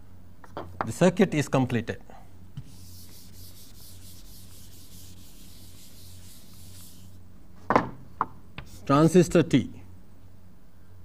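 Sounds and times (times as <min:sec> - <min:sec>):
chalkboard being wiped: 0:02.6 - 0:07.2, 0:08.6 - 0:09.2.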